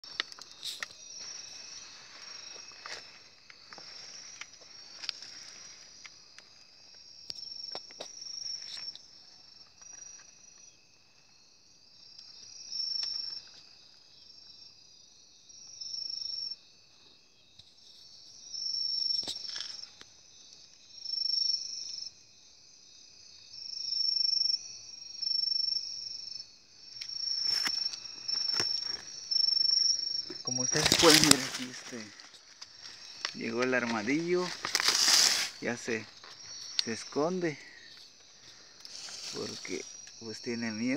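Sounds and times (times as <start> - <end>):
insect trills: 0.0 - 40.9
leaf litter crackling: 30.5 - 36.9, 38.5 - 39.9.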